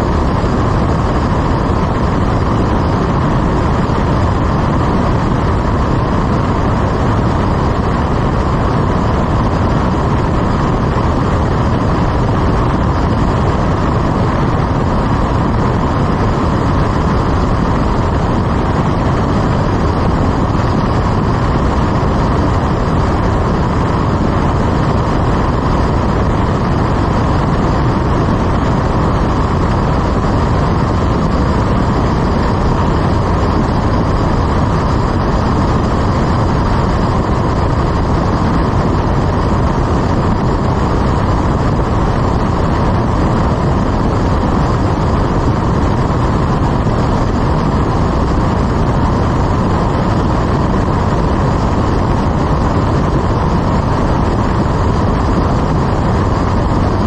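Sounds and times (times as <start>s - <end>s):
aircraft engine drone in cabin: 0.0s - 57.0s
airflow noise: 0.0s - 57.0s.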